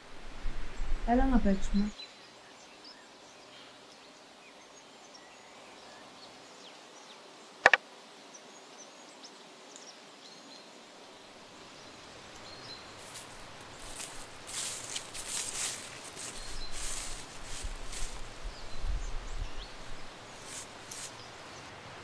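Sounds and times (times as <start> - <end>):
rustling: 13.0 - 21.7.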